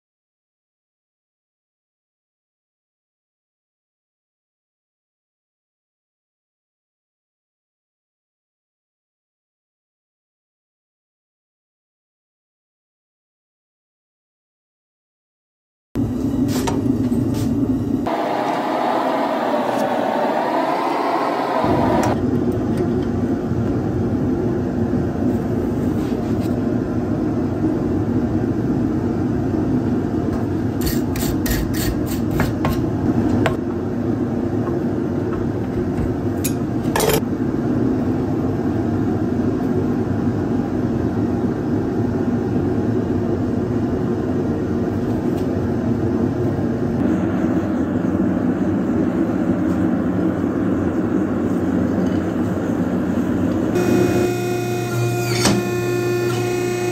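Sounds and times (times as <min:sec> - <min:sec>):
gas forge burner roaring: 0:16.0 - 0:56.9.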